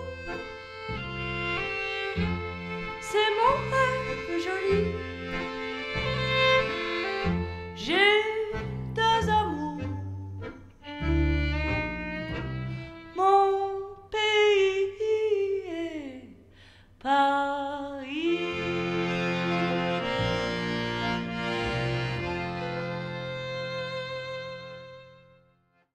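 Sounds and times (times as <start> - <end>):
double bass: 0.0 - 13.2, 18.2 - 25.2
button accordion: 0.0 - 13.3, 18.3 - 25.9
violin: 0.0 - 14.1, 18.1 - 25.9.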